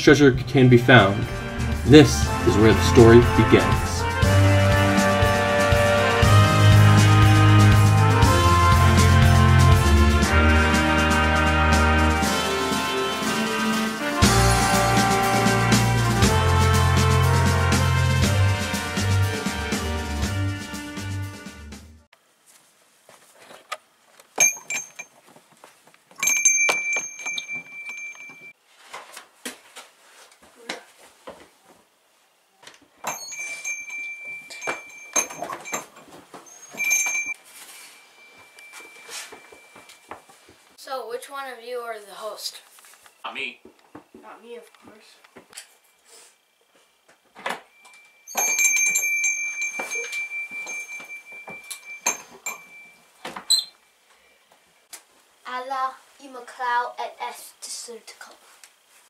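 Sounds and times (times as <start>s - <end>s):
small bell ringing: 24.4s - 25.1s, 26.2s - 28.6s, 33.0s - 40.1s, 47.7s - 54.4s.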